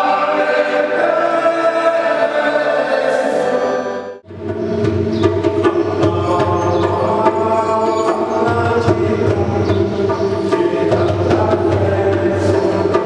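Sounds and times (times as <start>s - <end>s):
voices singing a hymn: 0.0s - 4.2s, 5.6s - 13.0s
hand drums beating: 4.2s - 13.0s.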